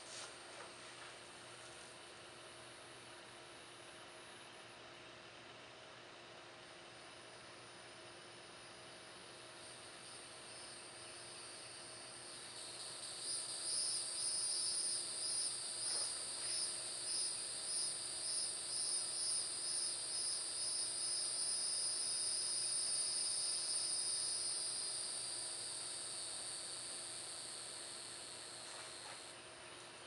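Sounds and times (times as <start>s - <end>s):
cicadas buzzing: 9.3s - 29.4s.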